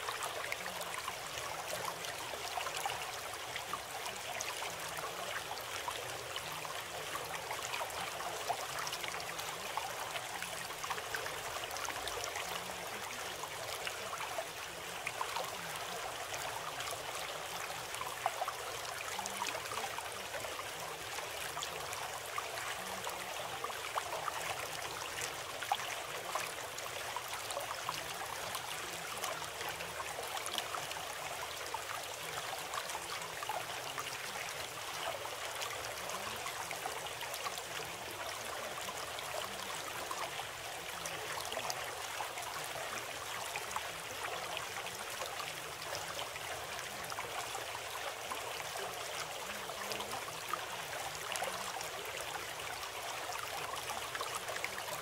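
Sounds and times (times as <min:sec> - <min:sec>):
trickling bubbling water: 0:00.0 - 0:55.0.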